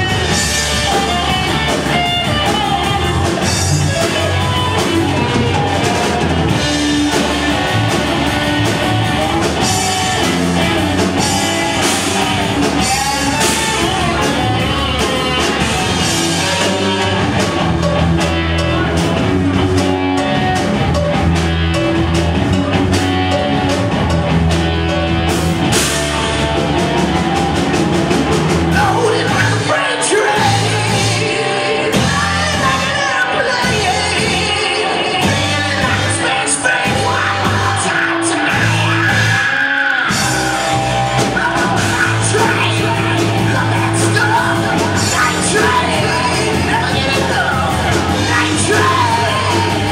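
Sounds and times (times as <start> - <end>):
person singing: 0.0 - 20.5, 28.7 - 49.9
drum kit: 0.0 - 49.9
electric guitars: 0.0 - 49.9.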